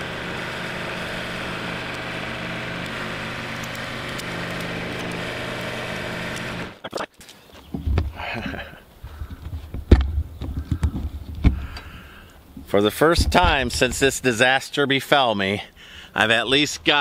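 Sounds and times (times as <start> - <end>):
tractor engine idling: 0.0 - 6.8
knocks and rattles: 9.2 - 11.7.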